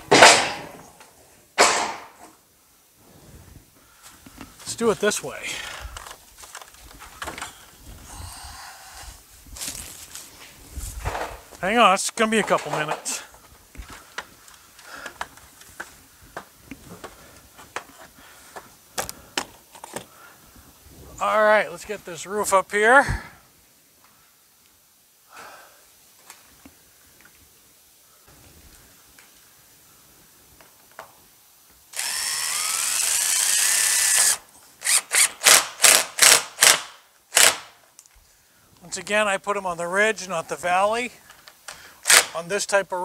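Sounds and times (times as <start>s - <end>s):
cordless drill driving screw into metal: 31.9s - 37.7s, 42.0s - 42.3s
short sharp bursts: 32.0s - 37.8s, 42.0s - 42.4s.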